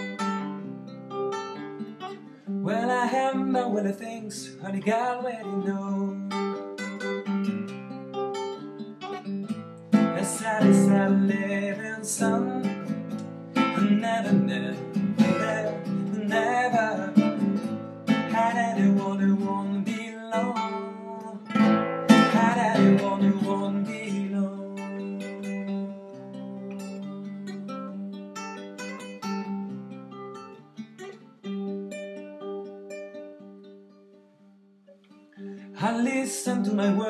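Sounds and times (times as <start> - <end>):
classical guitar: 0.0 - 37.0
man singing: 2.6 - 7.0, 10.0 - 27.7, 35.7 - 37.0.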